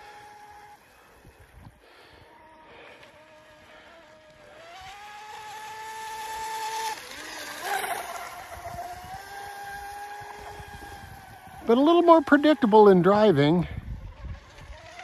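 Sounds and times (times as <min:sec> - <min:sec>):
model boat motor whine: 0:00.0 - 0:15.0.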